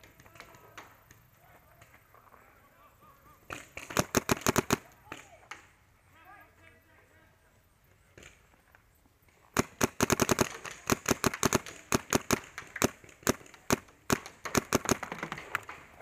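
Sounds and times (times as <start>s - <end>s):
paintball marker shots: 3.5s - 5.7s, 9.5s - 16.0s.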